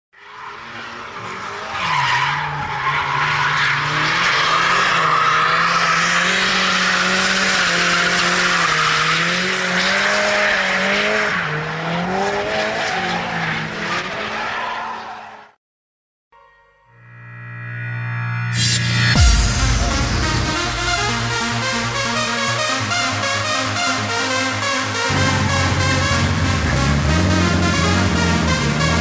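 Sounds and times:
car engine at high revs: 0:03.7 - 0:14.3, 0:24.8 - 0:29.0.

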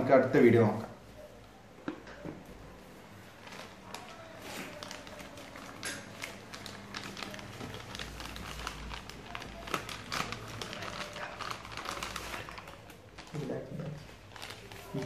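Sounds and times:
plastic bag crinkling: 0:03.3 - 0:15.0.

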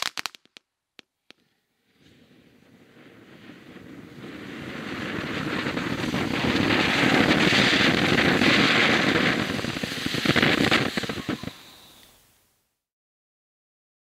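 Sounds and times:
firework crackling pops: 0:00.0 - 0:12.5
firework fountain hissing: 0:01.8 - 0:12.6.

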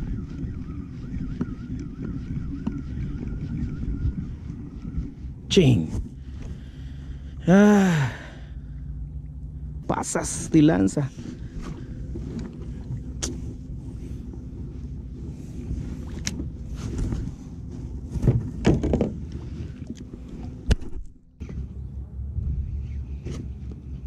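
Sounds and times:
fishing reel whirring: 0:00.0 - 0:05.2
reel clicks and knocks: 0:01.3 - 0:03.4, 0:16.1 - 0:17.2.

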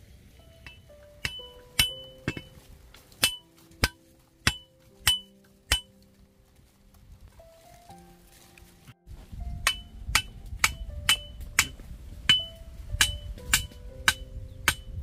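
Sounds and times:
metal tool striking: 0:00.6 - 0:02.6, 0:03.2 - 0:05.9, 0:09.6 - 0:14.9.

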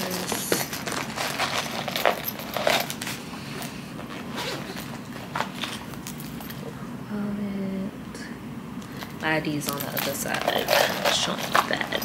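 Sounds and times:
zipping and rustling: 0:00.0 - 0:06.7, 0:09.7 - 0:12.0.

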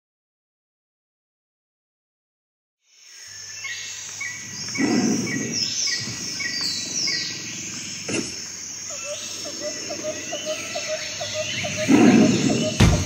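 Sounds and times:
bird chirping rhythmically: 0:08.9 - 0:13.0
falling whistled bird calls: 0:08.9 - 0:13.0.

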